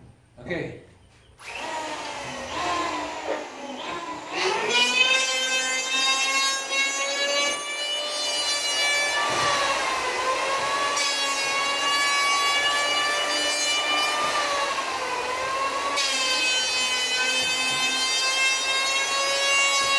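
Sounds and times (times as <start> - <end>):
electric hand planer whining: 1.4 - 19.9.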